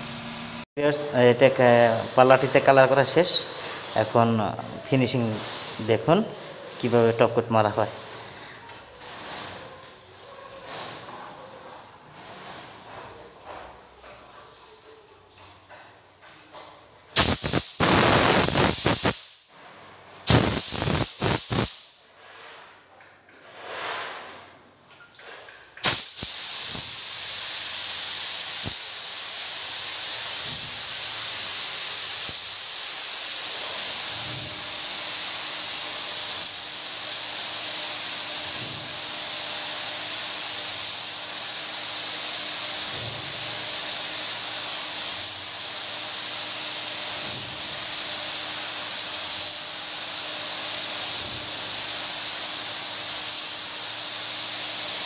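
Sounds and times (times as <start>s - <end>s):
spray gun hissing: 1.4s - 9.7s, 17.2s - 19.4s, 20.3s - 22.0s, 25.8s - 55.0s.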